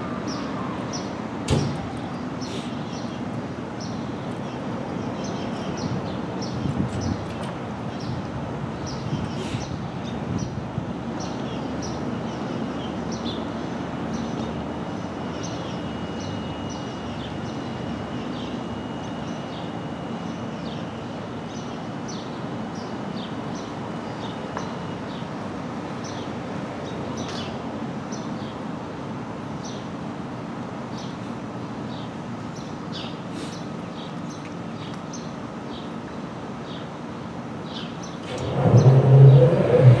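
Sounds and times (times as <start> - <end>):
birds chirping: 37.7 - 40.0
thin high whine: 38.2 - 40.0.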